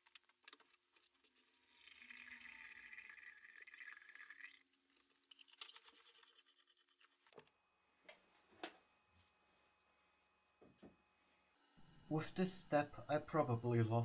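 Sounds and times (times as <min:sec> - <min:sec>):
liquid pouring into glass flask: 0:01.5 - 0:06.8.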